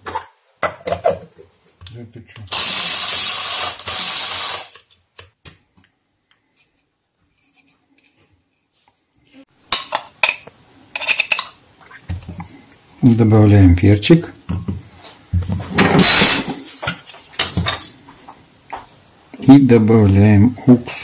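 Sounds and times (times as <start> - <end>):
electric spice grinder whirring: 2.5 - 4.8.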